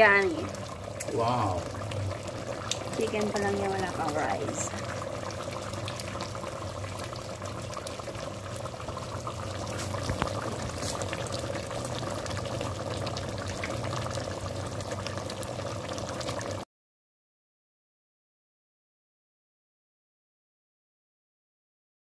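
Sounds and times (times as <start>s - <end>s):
curry bubbling in a pot: 0.0s - 16.6s.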